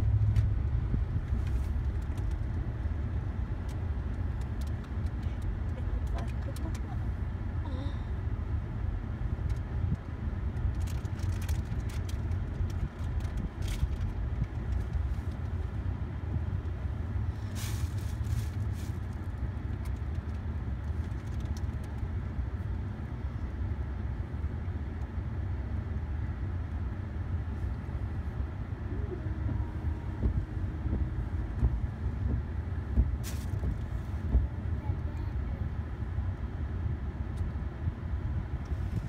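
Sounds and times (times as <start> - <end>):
car cabin low rumble: 0.0 - 39.0
sharp clicks and crackles: 1.2 - 2.6, 3.6 - 7.0, 9.4 - 15.7, 18.0 - 22.1.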